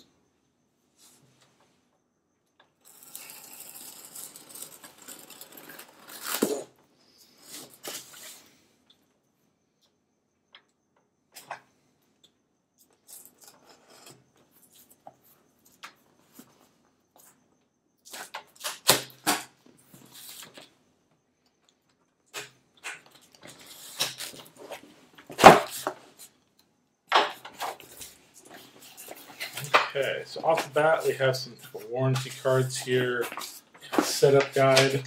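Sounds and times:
box cutter slitting tape: 0:02.9 - 0:06.7
cardboard flaps scraping and rustling: 0:04.1 - 0:06.8.

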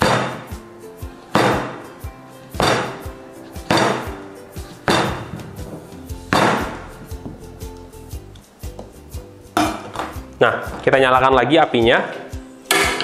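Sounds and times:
cleaver chopping on cutting board: 0:00.0 - 0:00.5, 0:01.3 - 0:01.8, 0:02.6 - 0:04.2, 0:06.3 - 0:06.9.

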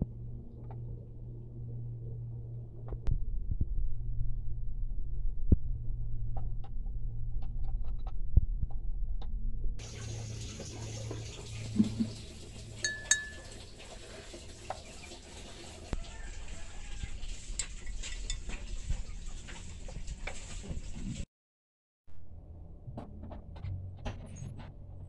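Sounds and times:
steady low hum: 0:00.0 - 0:13.4
ceramic clinks: 0:12.8 - 0:13.5.

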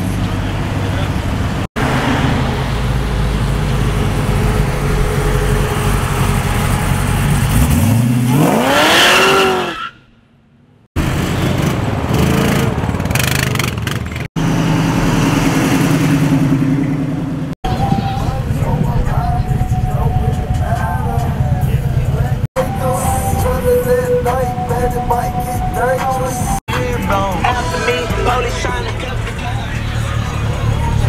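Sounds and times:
cars driving past: 0:00.0 - 0:09.8, 0:10.9 - 0:23.5
car engine revving hard: 0:00.8 - 0:09.8.

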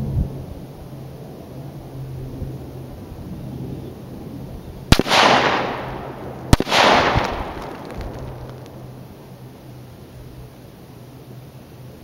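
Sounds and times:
rifle shots: 0:04.9 - 0:08.7.

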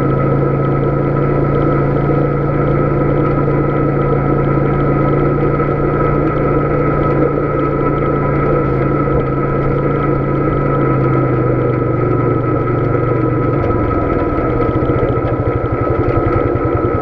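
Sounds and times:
atv engine running: 0:00.0 - 0:17.0
tires on gravel road: 0:00.0 - 0:17.0.

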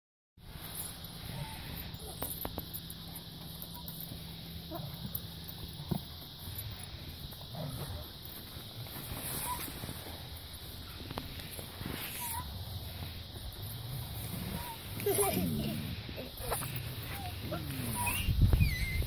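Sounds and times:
chains clicking: 0:00.6 - 0:08.4
swings squeaking: 0:00.6 - 0:19.0.

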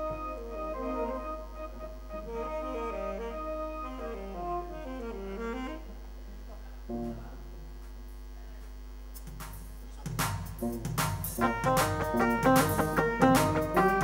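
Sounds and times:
instrumental background music: 0:00.0 - 0:05.8, 0:09.2 - 0:14.0
low mains hum: 0:00.0 - 0:14.0.

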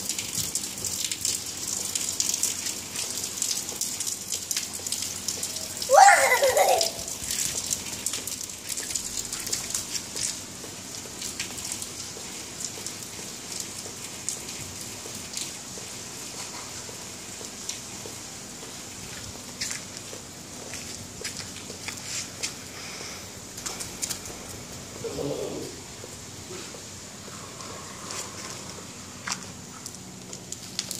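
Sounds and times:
rain on a rooftop: 0:00.0 - 0:30.9
high-pitched vocal cry: 0:05.9 - 0:07.1.

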